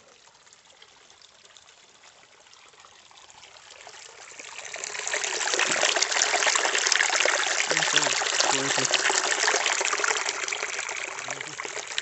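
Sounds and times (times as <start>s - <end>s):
stream trickling over rocks: 0.0s - 12.0s.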